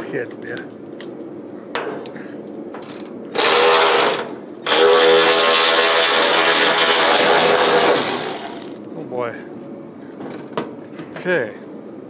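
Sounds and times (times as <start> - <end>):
power tool motor whine: 3.4 - 8.8.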